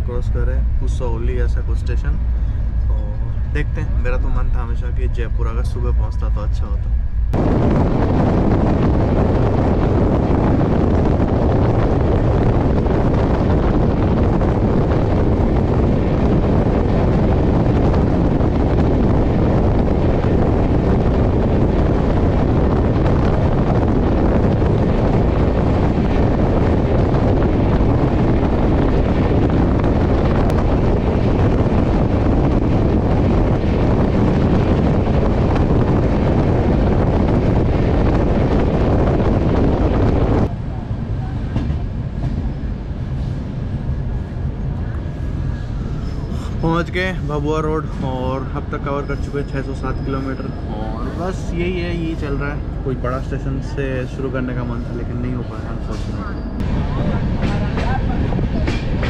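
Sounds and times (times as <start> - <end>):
train running on track: 0.0 - 59.0
wind noise on microphone: 0.0 - 59.0.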